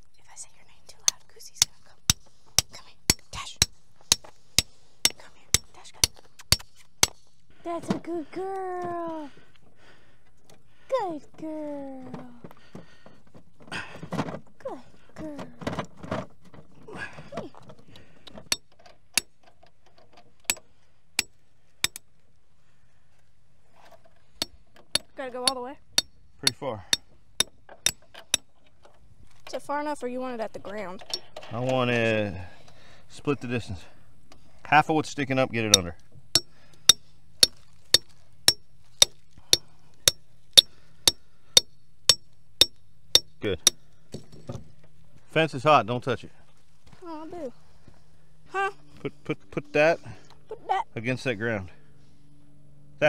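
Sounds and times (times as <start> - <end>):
hammer striking metal rod: 6.5 - 7.2, 38.5 - 43.8.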